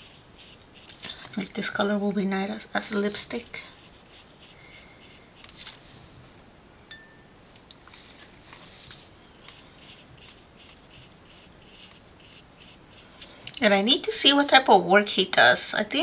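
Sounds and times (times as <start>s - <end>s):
brush strokes on paper: 0.0s - 1.9s, 2.6s - 6.2s, 7.9s - 13.4s
small sharp clink: 6.9s - 7.3s.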